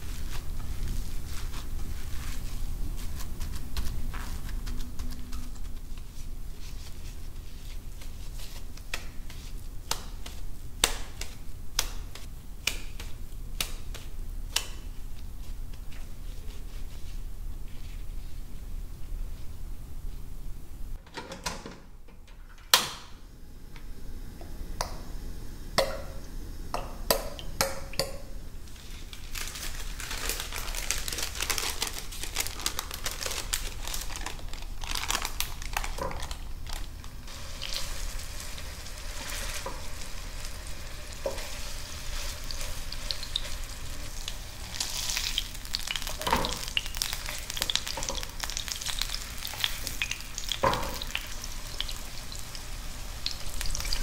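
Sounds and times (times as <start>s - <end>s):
food sizzling in hot oil: 37.3s - 54.0s.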